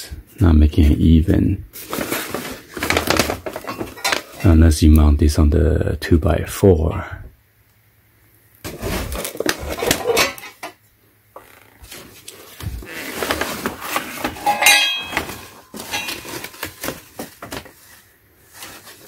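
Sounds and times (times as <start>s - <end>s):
steel tubes clanking and scraping: 3.4s - 4.6s, 9.8s - 10.8s, 13.1s - 17.0s
ringing metal clink: 14.4s - 15.3s.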